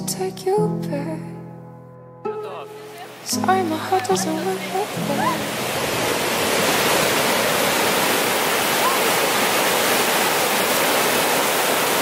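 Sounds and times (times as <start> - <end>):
ocean waves breaking: 2.7 - 12.0.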